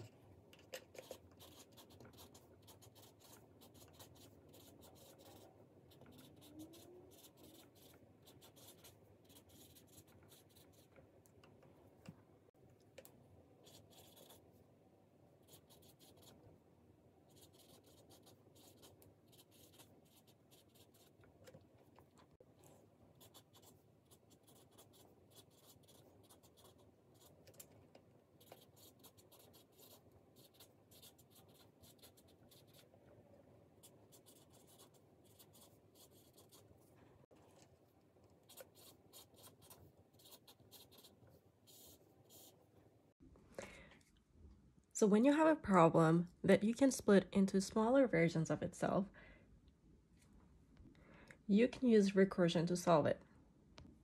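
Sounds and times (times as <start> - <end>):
marker writing on paper: 0.9 - 10.9, 13.6 - 14.4, 17.3 - 21.2, 23.2 - 27.4, 28.4 - 32.9.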